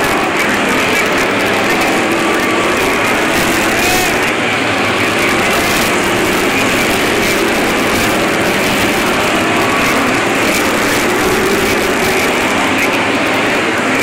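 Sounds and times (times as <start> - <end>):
racing car engines: 0.0 - 14.0.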